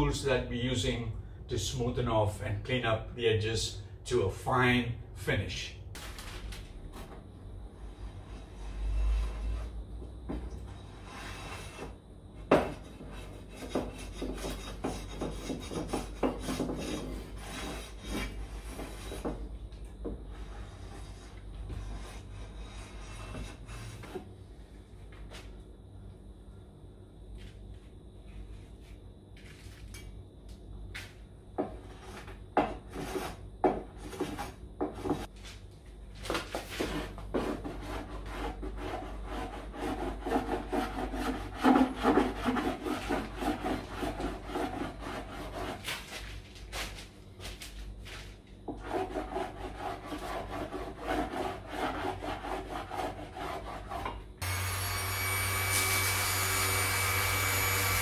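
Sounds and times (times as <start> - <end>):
electric orbital sander running: 54.4 - 58.0.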